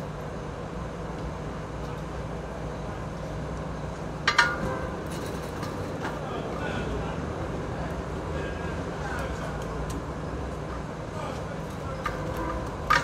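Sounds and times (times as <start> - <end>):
metal grate clanking: 4.3 - 6.0.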